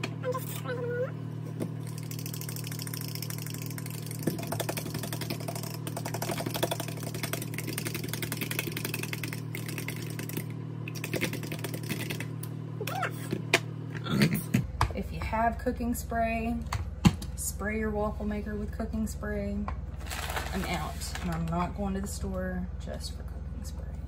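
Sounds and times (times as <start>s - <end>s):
steady low hum: 0.0s - 24.0s
eggs whisked in a bowl: 1.8s - 12.4s.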